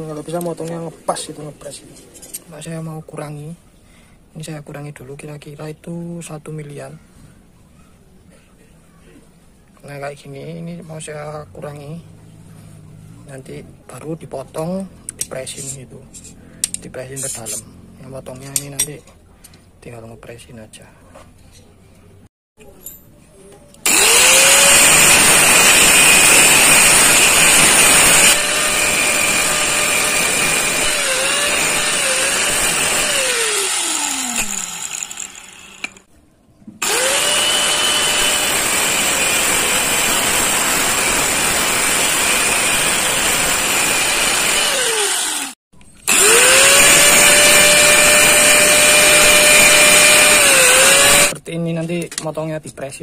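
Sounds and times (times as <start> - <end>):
angle grinder cutting metal: 23.8 - 36.1, 36.8 - 51.4.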